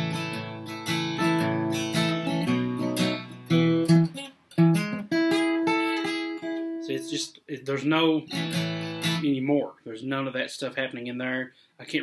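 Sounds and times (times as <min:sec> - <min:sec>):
flatpicked acoustic guitar lick: 0:00.0 - 0:09.4.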